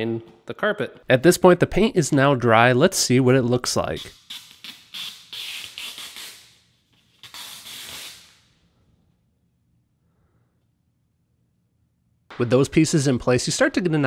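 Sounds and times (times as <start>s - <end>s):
plastic film peeling: 4.0s - 8.5s.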